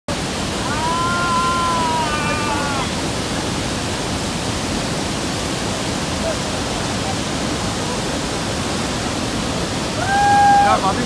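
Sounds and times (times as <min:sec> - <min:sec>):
waterfall roaring: 0:00.1 - 0:11.0
person shouting: 0:00.6 - 0:02.9, 0:10.0 - 0:10.8.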